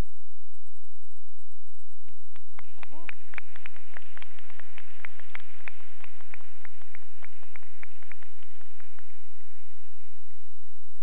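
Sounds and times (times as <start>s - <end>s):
applause: 2.2s - 10.2s.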